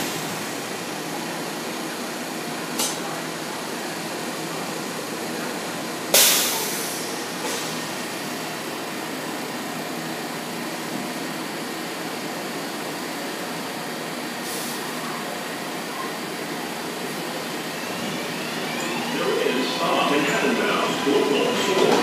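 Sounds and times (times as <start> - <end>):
subway train running: 0.0 - 22.0.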